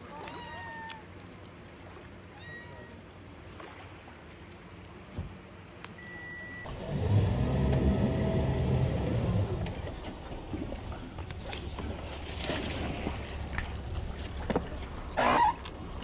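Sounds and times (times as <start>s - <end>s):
boat engine running: 6.2s - 16.0s.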